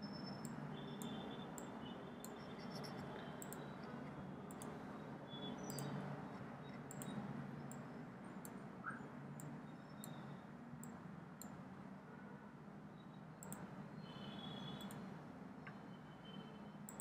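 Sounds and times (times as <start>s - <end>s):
computer mouse clicks: 0.2s - 4.8s, 5.6s - 11.6s, 13.4s - 13.7s, 14.7s - 15.8s.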